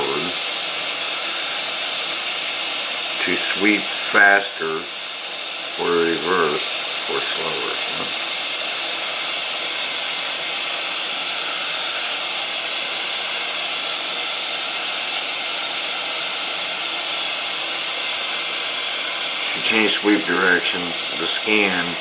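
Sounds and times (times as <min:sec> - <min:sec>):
radio static hiss: 0:00.0 - 0:01.8, 0:03.1 - 0:04.9, 0:05.6 - 0:09.2, 0:17.7 - 0:22.0.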